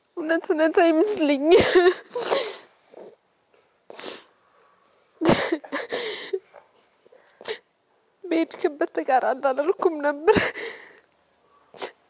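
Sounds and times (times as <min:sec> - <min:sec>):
woman crying: 0:01.4 - 0:02.6, 0:05.2 - 0:06.4, 0:10.1 - 0:10.9.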